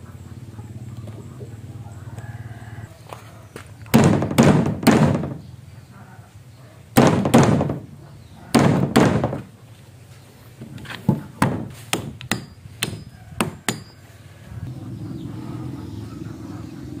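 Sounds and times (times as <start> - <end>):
fist knocking on wooden beam: 3.9 - 5.4, 7.0 - 7.9, 8.5 - 9.5, 11.1 - 13.9.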